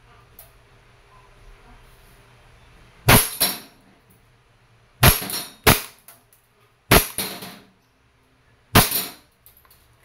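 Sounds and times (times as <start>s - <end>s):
airsoft pistol firing: 3.1s - 3.6s, 5.0s - 6.0s, 6.9s - 7.6s, 8.8s - 9.2s.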